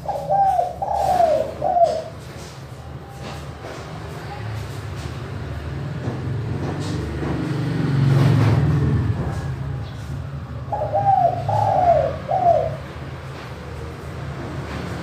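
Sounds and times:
dove cooing: 0.0 - 2.5, 10.6 - 13.0.

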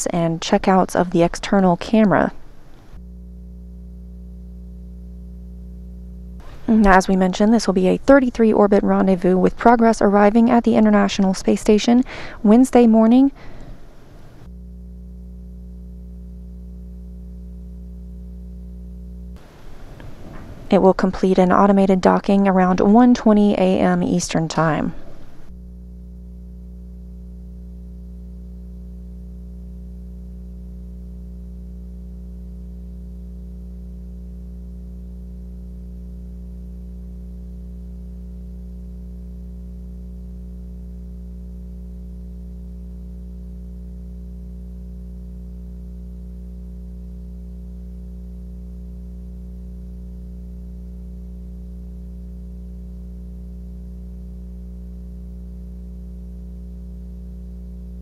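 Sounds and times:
low electrical hum: 0.0 - 58.0
faint hiss: 6.4 - 6.9, 19.4 - 20.8.

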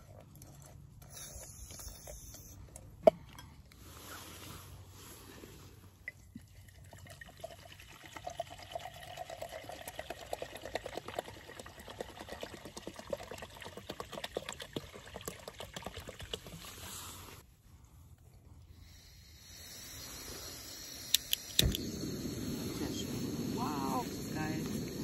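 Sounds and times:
water pouring into a pot: 6.4 - 16.8.

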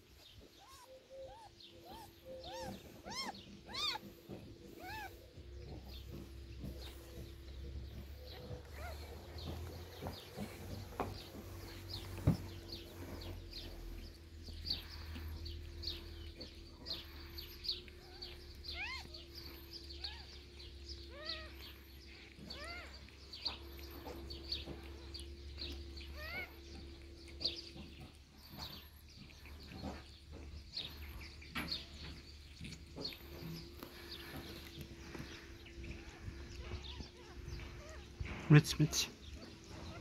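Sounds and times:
newborn kittens mewing: 0.6 - 14.0, 14.6 - 26.9
steady low hum: 0.6 - 38.5.

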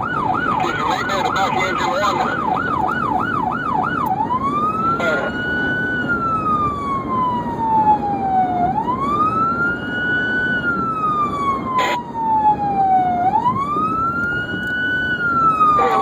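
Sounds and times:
emergency vehicle siren wailing: 0.0 - 16.0
road noise: 0.0 - 16.0.

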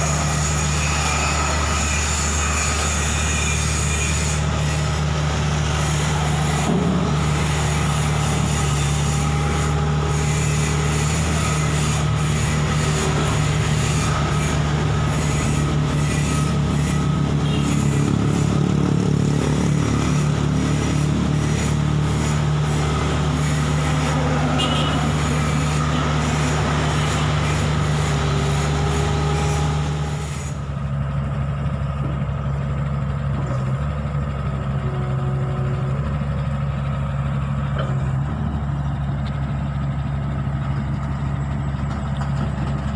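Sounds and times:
metal squeals: 0.0 - 30.6
diesel engine idling: 0.0 - 42.9.

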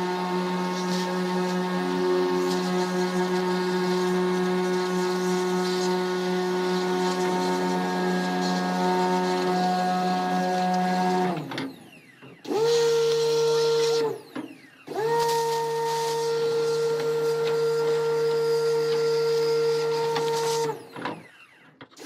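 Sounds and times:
pressure washer motor whining: 0.0 - 22.0
water spray hissing: 15.0 - 20.8.

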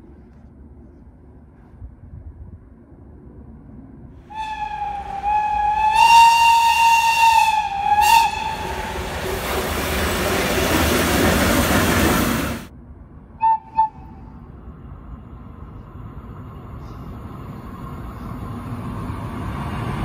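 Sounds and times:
locomotive air whistle blast: 4.3 - 9.1, 13.4 - 14.3.

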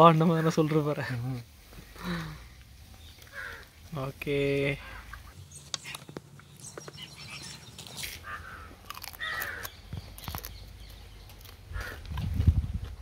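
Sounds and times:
crow cawing: 3.2 - 3.7, 4.8 - 5.2, 8.2 - 9.8, 11.7 - 12.0
crab shell cracking: 8.8 - 10.6.

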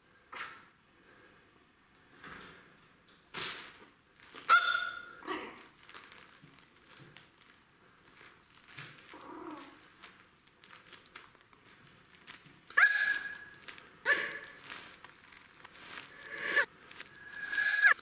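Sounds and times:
cellophane bag crinkling: 3.4 - 18.0
puppy yapping: 4.5 - 5.6, 12.7 - 14.6.

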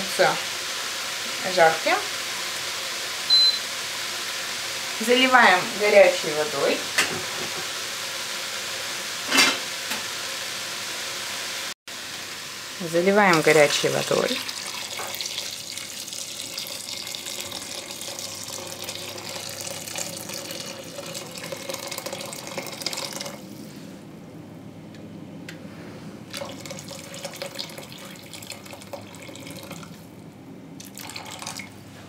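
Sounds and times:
water pouring into a bowl: 13.7 - 23.4, 26.3 - 30.0, 30.8 - 31.7.

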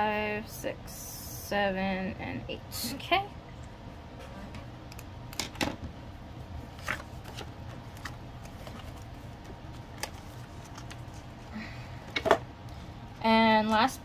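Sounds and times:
steady low hum: 0.0 - 14.0
paper and plastic rustling: 6.7 - 11.4.

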